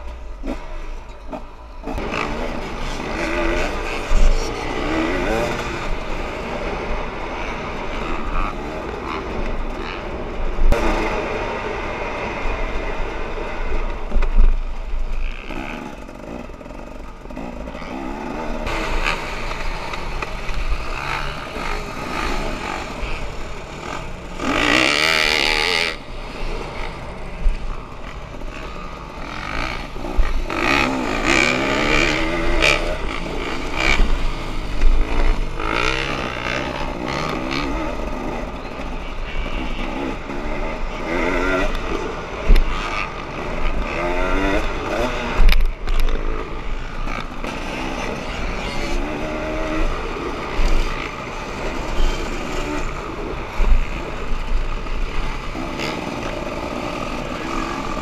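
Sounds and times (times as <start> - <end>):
dirt bike engine revving: 0.0 - 14.2, 14.8 - 58.0.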